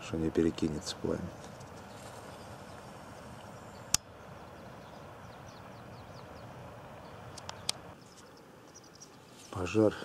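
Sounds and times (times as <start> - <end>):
sharp clicks: 7.4 - 7.8.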